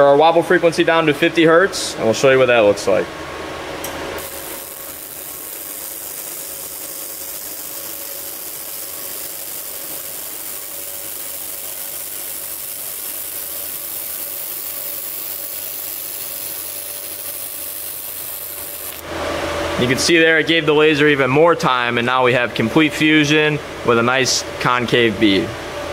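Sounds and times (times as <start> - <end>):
faint steady hum: 0.0 - 25.9
laser welder hissing crackle: 4.2 - 19.1.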